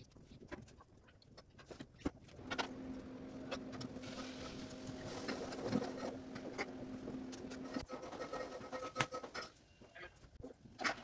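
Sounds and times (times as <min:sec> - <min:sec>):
steady machine hum: 0:02.3 - 0:07.9.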